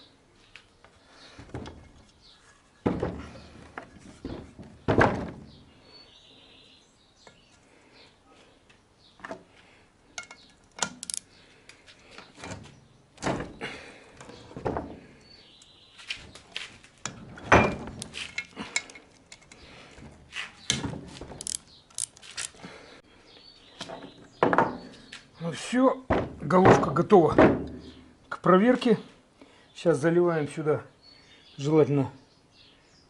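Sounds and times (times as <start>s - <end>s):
ratchet clicking on metal: 10.7s - 11.2s, 21.4s - 22.5s.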